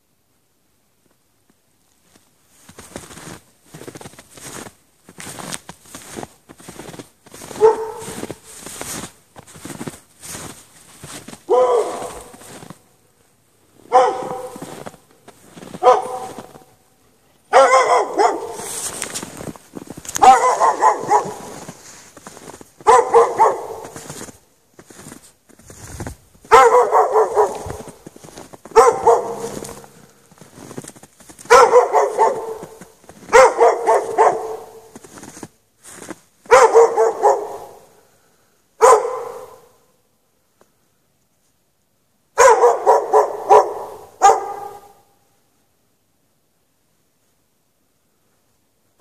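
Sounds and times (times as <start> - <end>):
dog barking: 7.4 - 9.8, 10.4 - 12.8, 13.9 - 16.8, 17.5 - 19.5, 20.1 - 24.3, 26.4 - 30.8, 31.4 - 35.4, 36.4 - 38.0, 38.8 - 39.9, 42.4 - 45.2.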